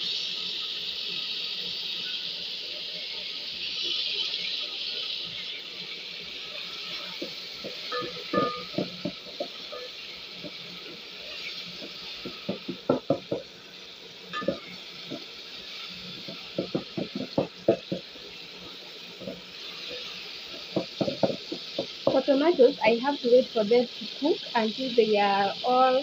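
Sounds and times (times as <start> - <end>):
vegetables frying in oil: 0.0 - 26.0.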